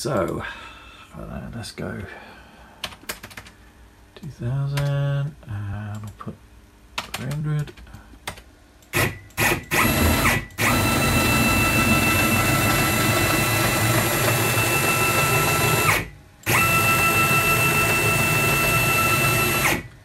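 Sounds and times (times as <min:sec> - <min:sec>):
cnc router motor whine: 0:09.7 - 0:19.9.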